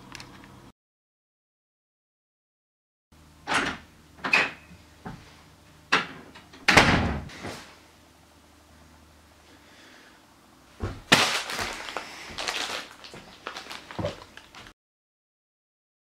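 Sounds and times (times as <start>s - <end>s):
wooden door opening and shutting: 3.4s - 4.6s, 5.9s - 7.3s
person flopping onto sofa: 10.8s - 11.8s.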